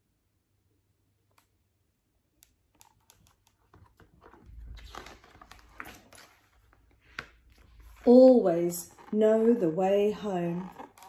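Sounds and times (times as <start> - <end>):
book page turning: 2.8 - 9.4.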